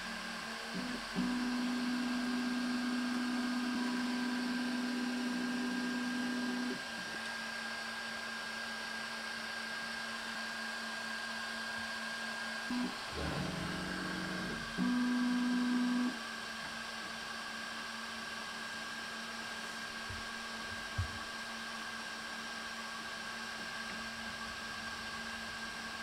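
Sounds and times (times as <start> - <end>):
printer motors humming: 0.0 - 7.4, 12.7 - 16.2.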